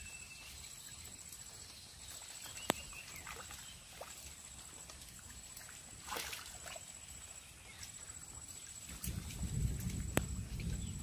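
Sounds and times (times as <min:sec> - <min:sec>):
water sloshing: 0:00.0 - 0:11.0
short splash: 0:05.1 - 0:06.9.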